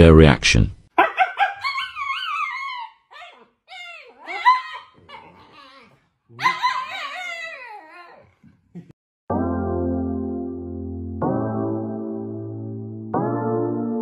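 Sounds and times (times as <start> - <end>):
dog yowling and whining: 1.0 - 8.4.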